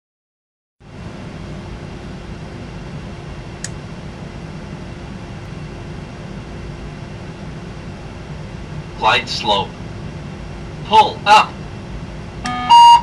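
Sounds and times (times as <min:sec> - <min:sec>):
cockpit hum and hiss: 0:00.8 - 0:13.0.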